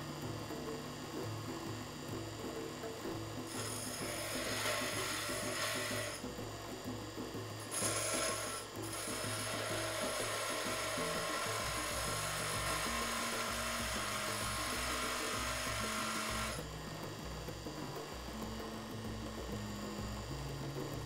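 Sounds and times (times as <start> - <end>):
bench grinder grinding metal: 3.4 - 16.9.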